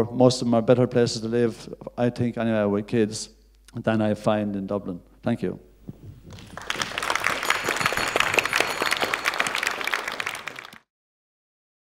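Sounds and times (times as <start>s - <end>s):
audience applauding: 6.1s - 10.9s.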